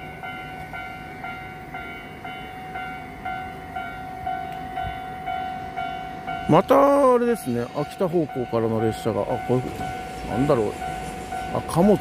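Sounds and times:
level crossing warning bell: 0:00.0 - 0:12.0.

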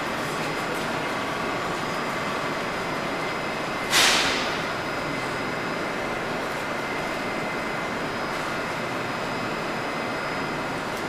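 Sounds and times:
pneumatic brakes hissing: 0:03.8 - 0:04.6.

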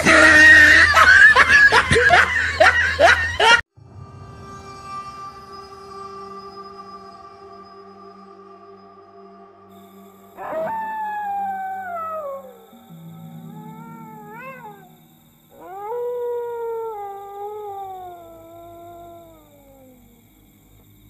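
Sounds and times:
dog howling: 0:10.3 - 0:20.3.

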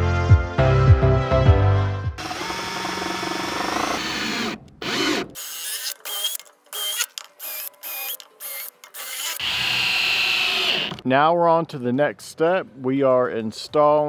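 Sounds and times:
cordless drill driving screws: 0:02.2 - 0:11.0.

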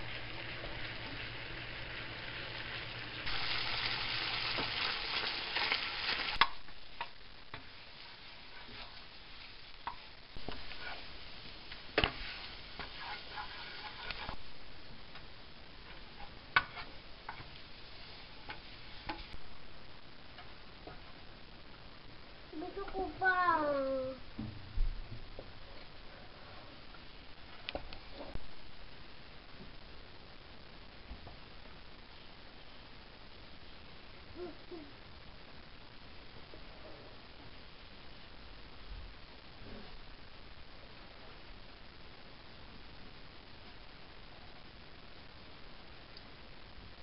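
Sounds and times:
milk sizzling in a frying pan: 0:00.0 - 0:21.5
spoon scraping and tapping pan: 0:12.0 - 0:14.4, 0:15.9 - 0:17.5.

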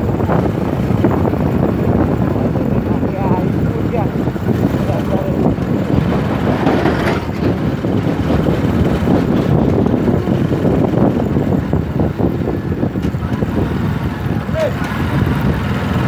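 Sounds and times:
vehicle engine and road noise: 0:00.0 - 0:16.0.

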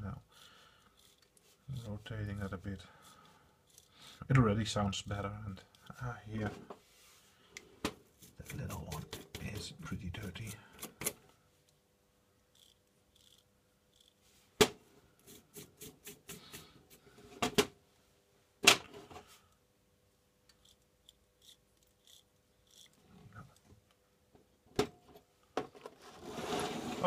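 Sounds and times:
toothbrush scratching: 0:00.9 - 0:03.9, 0:08.2 - 0:10.6, 0:12.6 - 0:14.2, 0:20.6 - 0:23.0.

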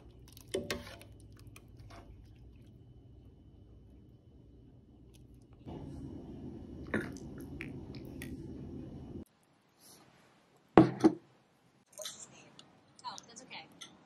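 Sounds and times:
low hum: 0:01.2 - 0:09.3.

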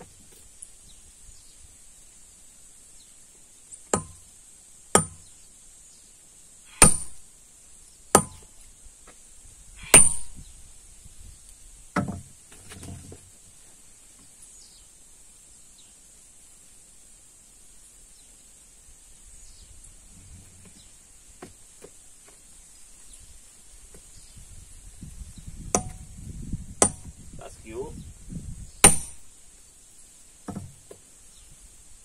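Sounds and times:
hammer ringing on steel: 0:09.9 - 0:10.3.

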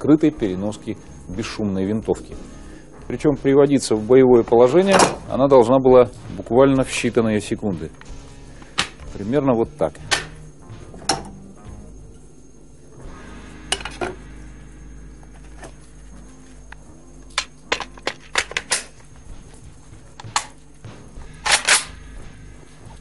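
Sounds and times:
rifle parts clicking into place: 0:17.4 - 0:19.0, 0:21.4 - 0:21.9.

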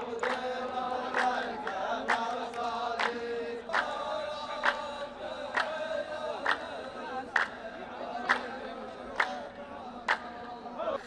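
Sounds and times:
unison hand claps: 0:00.0 - 0:09.4, 0:10.0 - 0:10.5
men chanting in unison: 0:00.0 - 0:11.0.

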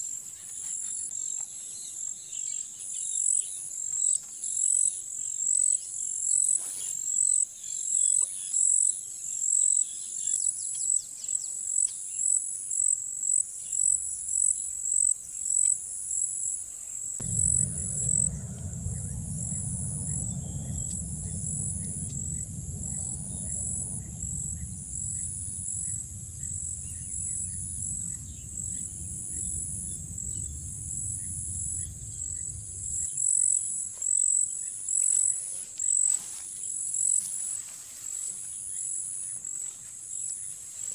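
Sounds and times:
steady low rumble: 0:17.2 - 0:35.4
insects trilling chorus: 0:17.2 - 0:38.2.

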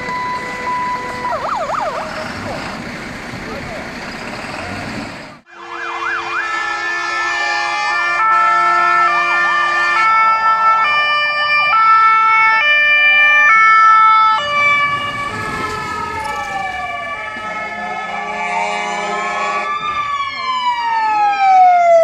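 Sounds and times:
slow rising and falling siren: 0:00.0 - 0:04.8, 0:05.4 - 0:22.0
fast yelping siren wail: 0:00.1 - 0:02.6, 0:05.5 - 0:22.0
multi-tone horn: 0:05.4 - 0:10.3, 0:15.1 - 0:16.2, 0:17.2 - 0:19.8.

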